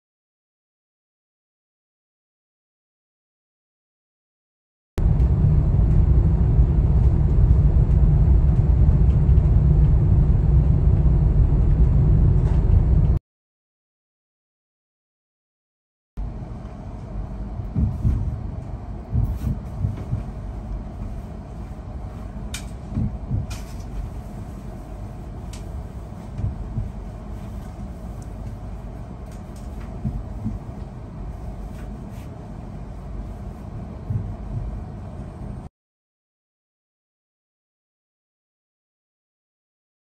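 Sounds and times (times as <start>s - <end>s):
low thumps: 5.0s - 13.2s, 17.1s - 32.0s
vehicle rumble: 5.0s - 13.2s, 16.2s - 35.7s.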